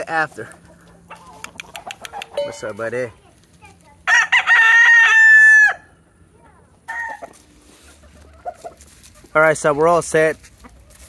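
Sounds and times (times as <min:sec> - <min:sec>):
rooster crowing: 0:04.1 - 0:06.0, 0:06.9 - 0:07.4.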